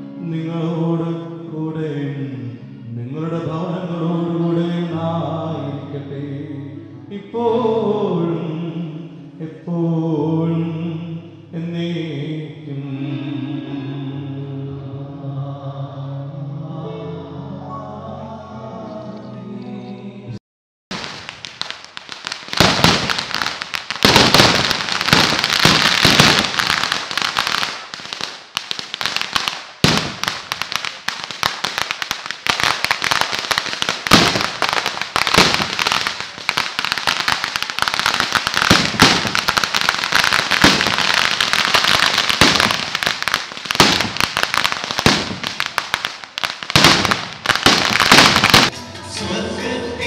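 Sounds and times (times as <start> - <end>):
firecracker bangs: 20.9 - 48.8
firecrackers crackling: 20.9 - 48.8.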